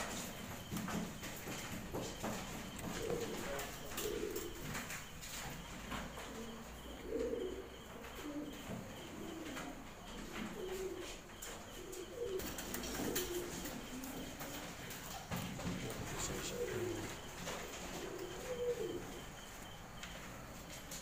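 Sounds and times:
pigeons cooing: 0:00.0 - 0:21.0.

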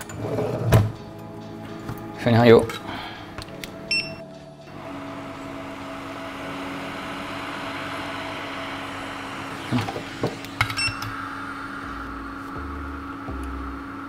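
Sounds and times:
hot-air gun humming and hissing: 0:04.7 - 0:14.0.

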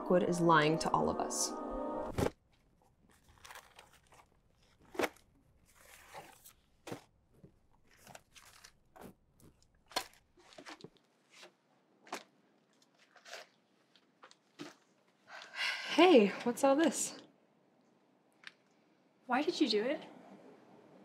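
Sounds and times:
crunching and rustling: 0:02.1 - 0:15.1.

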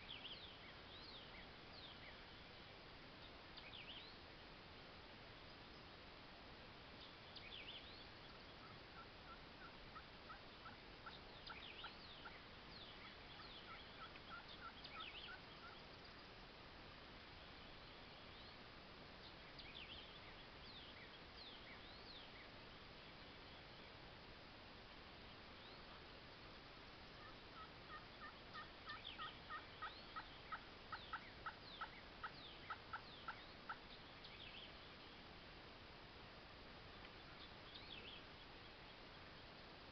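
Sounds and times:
songbird chirping: 0:00.0 - 0:39.9
wild turkey calling: 0:07.3 - 0:15.9, 0:25.6 - 0:26.1, 0:27.1 - 0:35.2.

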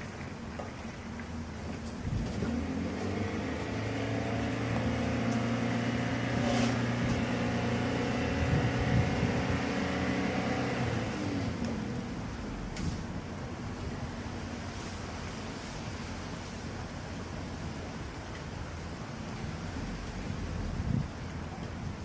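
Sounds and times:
vehicle engine passing: 0:02.1 - 0:13.1.

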